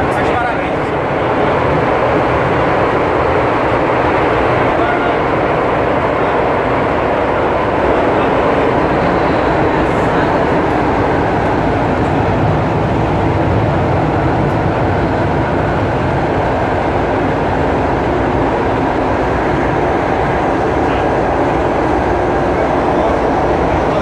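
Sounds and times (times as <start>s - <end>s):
metro train rumbling: 0.0s - 24.0s.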